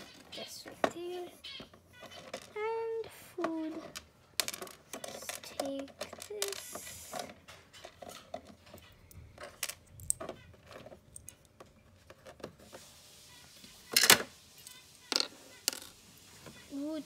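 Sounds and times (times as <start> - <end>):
plastic toy clatter: 2.0 - 2.7, 3.4 - 12.6, 13.9 - 16.0
plastic toy pieces clicking: 3.6 - 11.4.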